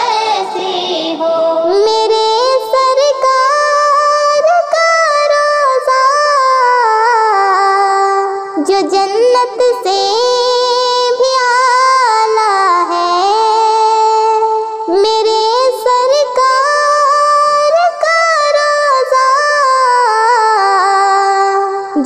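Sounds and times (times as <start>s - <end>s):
woman singing: 0.0s - 22.0s.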